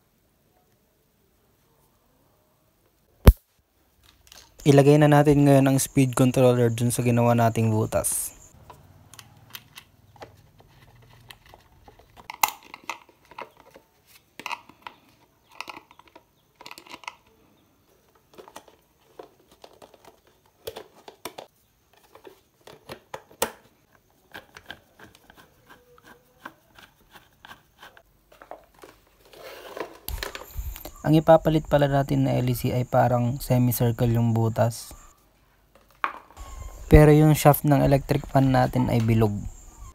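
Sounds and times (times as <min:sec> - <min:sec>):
hands rubbing plastic: 0:09.7 - 0:31.0.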